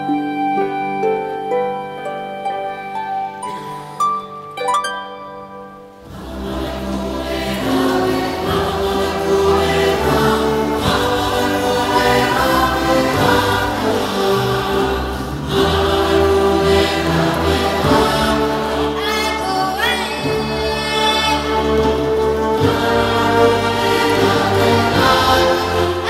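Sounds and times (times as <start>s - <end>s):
wind band playing: 5.3s - 26.0s
mixed choir singing: 6.0s - 26.0s.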